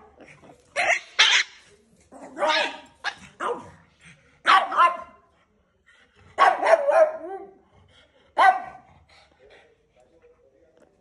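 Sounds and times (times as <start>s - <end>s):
dog barking: 4.4s - 5.2s, 6.4s - 7.5s, 8.4s - 8.9s.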